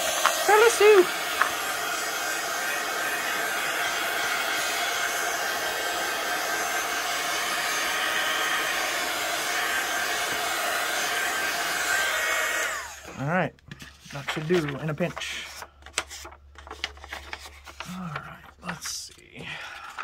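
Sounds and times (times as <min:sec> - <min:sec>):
heat tool blowing hot air: 0:00.0 - 0:13.2.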